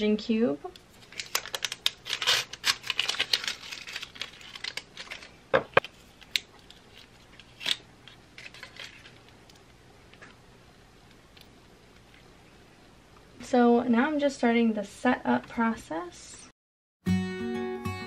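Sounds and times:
plastic wrap crinkling: 0.8 - 9.6.

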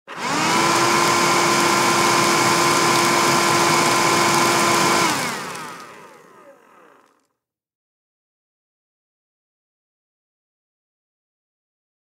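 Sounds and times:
handheld vacuum cleaner whining: 0.1 - 7.3.

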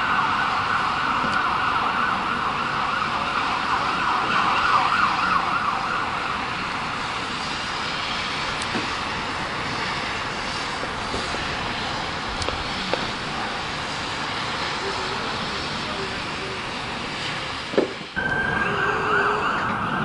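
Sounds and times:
siren warbling: 0.0 - 6.9, 18.2 - 20.0
street noise: 0.0 - 20.0.

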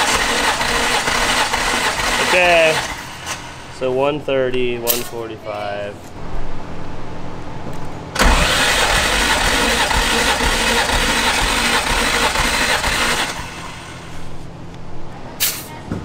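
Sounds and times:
engine cranking on starter: 0.0 - 3.6, 8.2 - 14.2.

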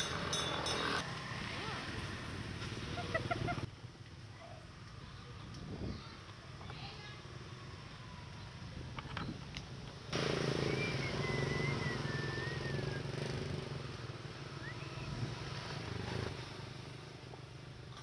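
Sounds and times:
small motorbike engine running: 10.2 - 13.7.

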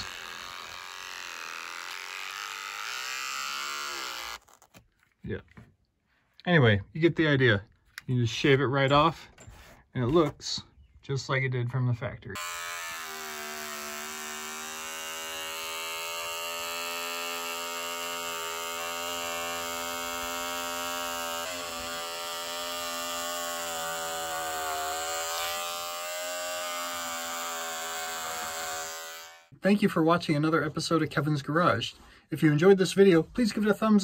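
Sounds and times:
electric razor buzzing: 0.0 - 4.7, 12.4 - 29.5.

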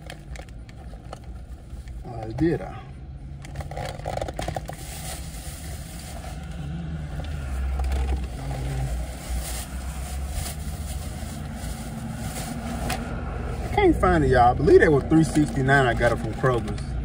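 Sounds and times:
clothing rustling: 7.4 - 13.8.

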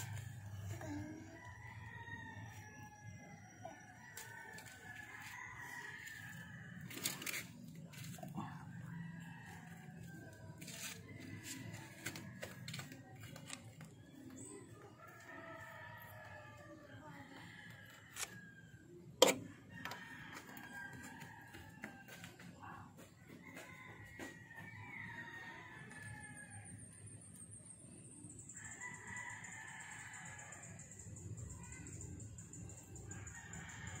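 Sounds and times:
roosters crowing: 0.0 - 13.0, 15.0 - 22.4.

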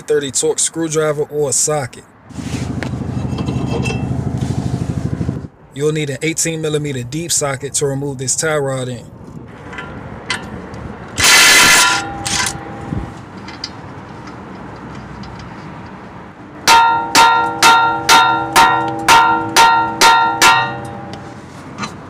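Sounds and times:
impact wrench burst: 11.2 - 12.7
hammer blows on metal: 16.7 - 21.4.

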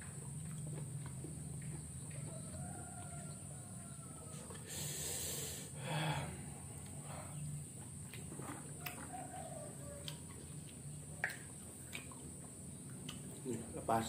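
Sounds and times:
rooster crowing: 2.3 - 4.7, 8.8 - 10.2.

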